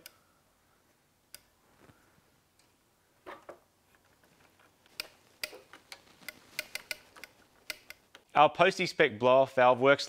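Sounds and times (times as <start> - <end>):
hand tool clicking: 4.8 - 8.3.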